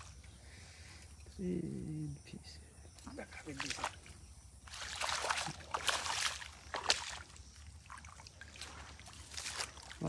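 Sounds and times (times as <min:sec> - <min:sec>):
water trickling: 0:02.9 - 0:10.0
water splashing: 0:03.0 - 0:10.0.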